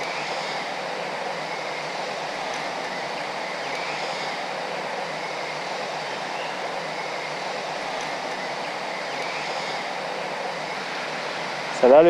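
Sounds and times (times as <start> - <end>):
river current rushing: 0.0 - 12.0.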